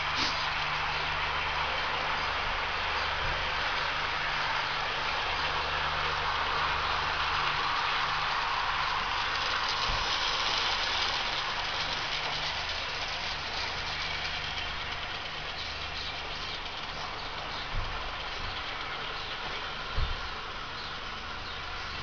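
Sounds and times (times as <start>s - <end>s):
hiss: 0.0s - 0.6s
low diesel engine drone: 0.0s - 22.0s.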